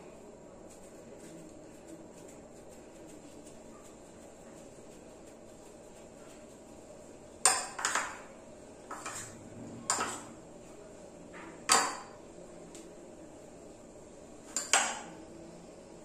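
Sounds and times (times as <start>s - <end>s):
spoon clinking against a bowl: 14.5s - 15.0s.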